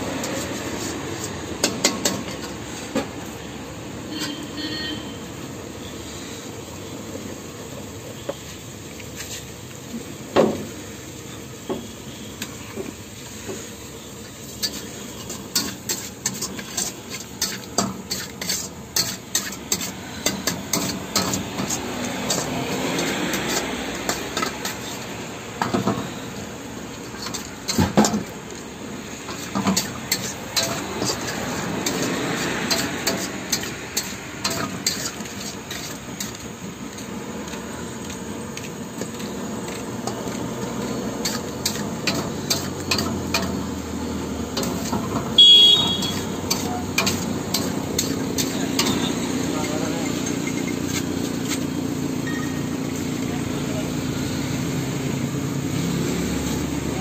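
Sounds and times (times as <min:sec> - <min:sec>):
metal spatula scraping a wok: 0:00.0 - 0:03.1, 0:04.0 - 0:06.6, 0:08.2 - 0:10.2, 0:12.1 - 0:38.0, 0:38.6 - 0:52.0
food sizzling: 0:00.0 - 0:57.0.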